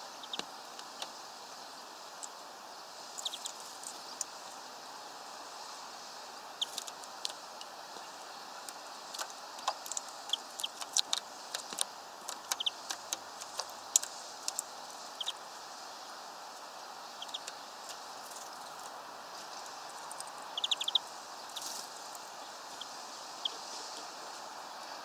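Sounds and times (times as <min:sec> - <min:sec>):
small birds chirping: 0:00.0 - 0:25.0
steady background hiss: 0:00.0 - 0:25.0
sharp ticks and clicks: 0:06.6 - 0:07.7, 0:08.6 - 0:15.4, 0:17.2 - 0:18.9.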